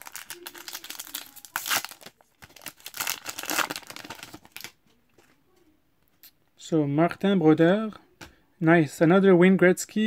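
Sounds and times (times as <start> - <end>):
card pack wrapper crinkling and tearing: 0.0 - 4.8.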